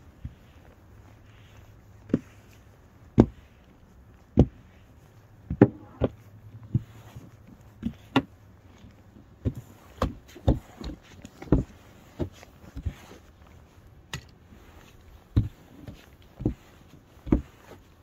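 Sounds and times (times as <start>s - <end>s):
snow brush thudding on car: 2.0s - 3.6s, 9.4s - 13.2s.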